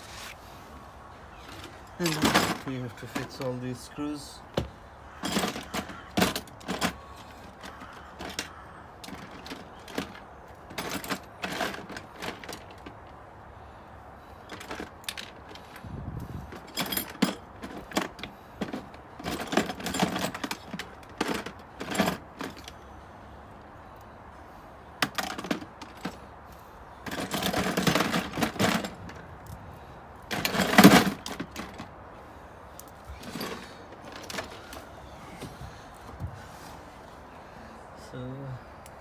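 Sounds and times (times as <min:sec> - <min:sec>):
hand tools and screws rattling: 0:01.4 - 0:04.3, 0:05.1 - 0:13.3, 0:14.2 - 0:22.8, 0:25.0 - 0:35.5.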